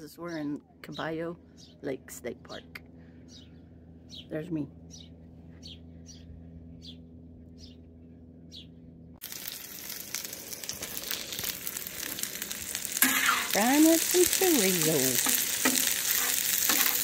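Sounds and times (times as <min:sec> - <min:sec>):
steady low hum: 0:00.0 - 0:17.0
bird chirping: 0:02.5 - 0:08.8
meat sizzling on a griddle: 0:09.2 - 0:17.0
metal spatula scraping: 0:13.0 - 0:13.6, 0:15.2 - 0:17.0.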